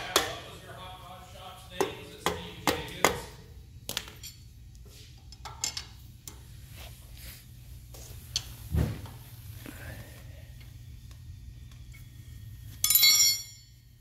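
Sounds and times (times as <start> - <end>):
metal tools clinking and knocking: 4.1 - 4.5, 5.2 - 6.0, 12.8 - 13.8.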